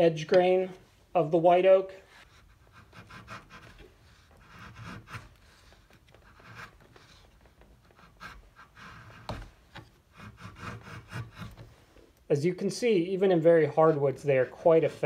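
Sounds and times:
chisel scraping wood: 2.0s - 12.0s.

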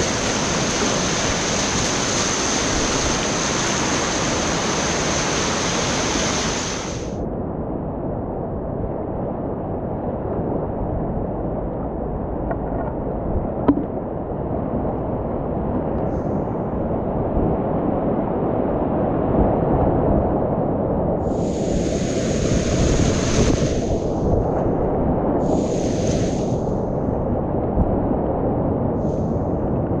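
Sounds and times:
hissing spray: 0.0s - 7.2s, 21.3s - 24.2s, 25.4s - 26.7s
sharp knock: 13.7s - 13.9s.

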